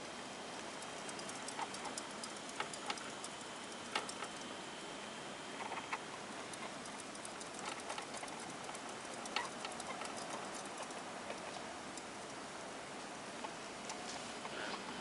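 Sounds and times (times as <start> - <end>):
hamster wheel clicking: 0.0 - 4.6, 5.6 - 12.4
faint steady hiss: 0.0 - 15.0.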